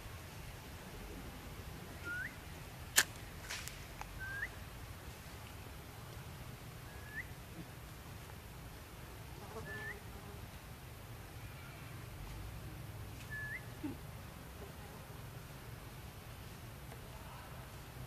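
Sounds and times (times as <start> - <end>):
bird whistled call: 2.0 - 2.4, 4.2 - 4.6, 6.9 - 7.3, 13.3 - 13.7.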